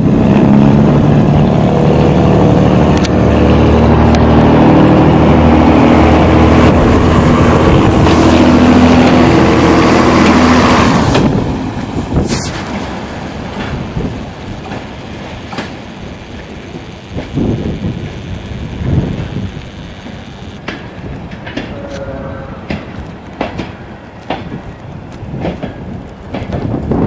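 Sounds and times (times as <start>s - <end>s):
diesel railbus engine passing: 0.0s - 27.0s.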